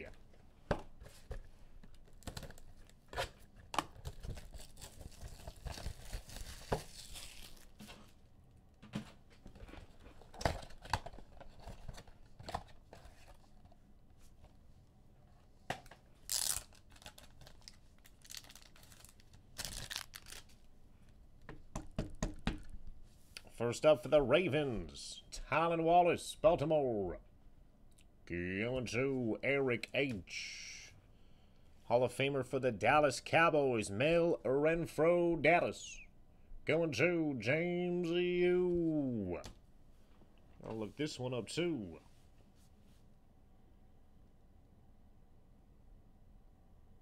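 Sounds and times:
plastic packaging rustling: 1.9s - 8.2s, 16.2s - 20.6s.

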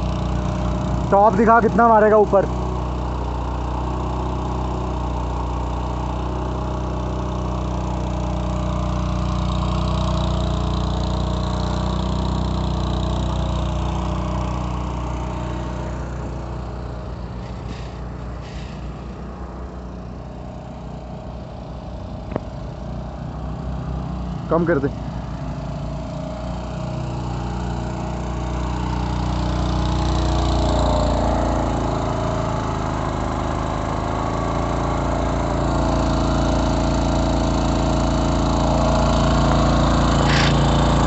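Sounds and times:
spray engine running: 0.0s - 41.0s
high-pressure water jet: 34.5s - 41.0s.

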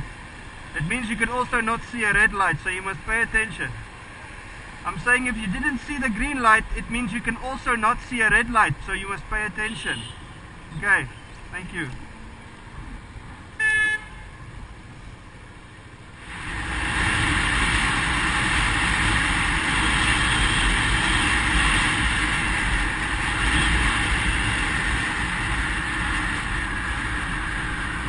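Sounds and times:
motorcycle road noise: 0.0s - 28.0s
wind rush on helmet: 16.2s - 28.0s.

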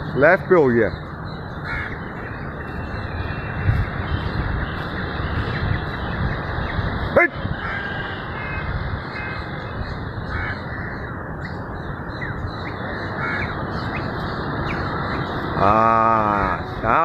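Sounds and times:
bird calls: 0.0s - 17.0s
crows cawing: 1.6s - 3.9s, 7.5s - 11.2s, 12.9s - 17.0s.

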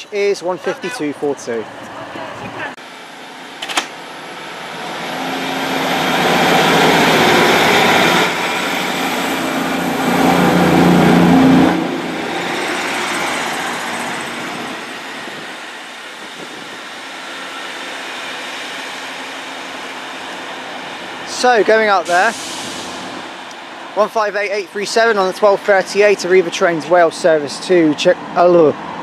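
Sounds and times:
diesel train engine drone: 0.0s - 29.0s
train wheel noise: 1.7s - 24.2s.

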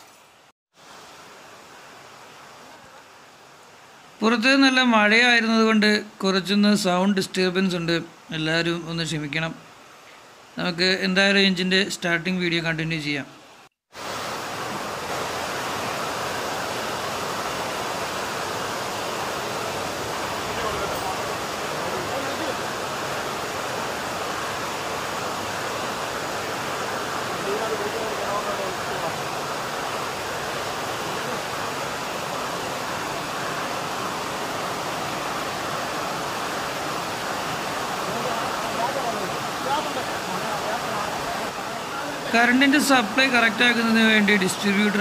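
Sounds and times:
heavy rain falling: 13.4s - 45.0s.

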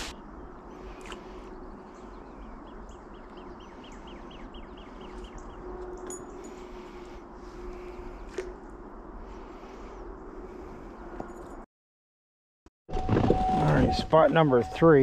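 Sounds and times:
outdoor background noise: 0.0s - 11.7s.

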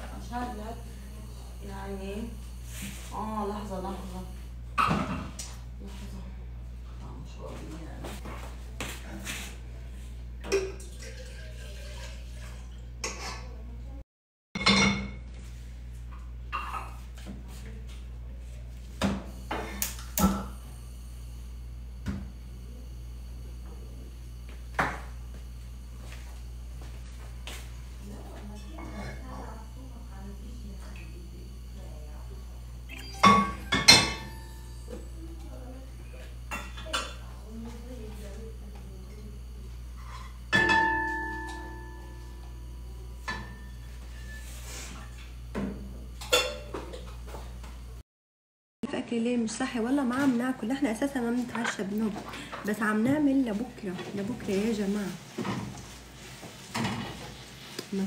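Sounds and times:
dishes clattering on stove top: 4.8s - 5.5s, 10.4s - 12.1s, 13.0s - 13.6s, 14.6s - 15.3s, 36.5s - 37.3s, 40.0s - 42.1s, 43.2s - 44.4s, 45.0s - 47.2s, 56.7s - 57.4s
low steady hum: 17.7s - 47.8s
kitchenware clanking: 32.9s - 35.0s, 36.5s - 37.3s, 40.0s - 42.4s, 43.2s - 44.4s, 45.0s - 47.1s.

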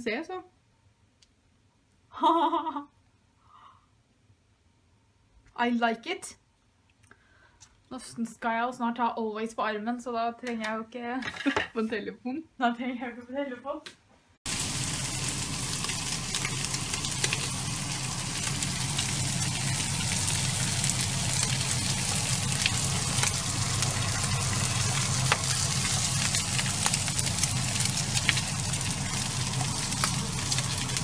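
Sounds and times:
fat popping and crackling: 14.5s - 31.0s
meat sizzling in a frying pan: 14.5s - 31.0s
steady low hum: 14.5s - 31.0s
water boiling in a pot: 14.5s - 31.0s.

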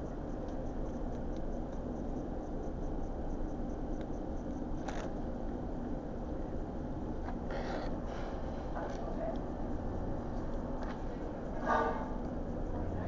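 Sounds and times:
dining room background noise: 6.2s - 13.0s.

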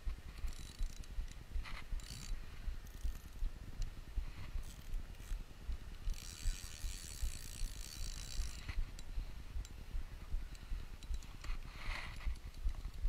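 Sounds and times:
fishing reel gears whirring: 0.4s - 3.5s, 4.5s - 5.4s, 6.0s - 9.7s.

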